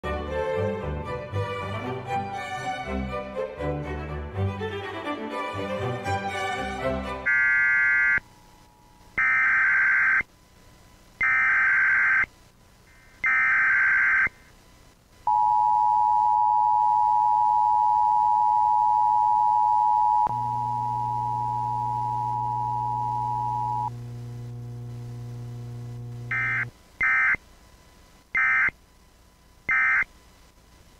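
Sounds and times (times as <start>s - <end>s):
low buzzing hum: 7.4s - 30.9s
warbling data bursts: 13.0s - 14.4s, 26.3s - 27.4s.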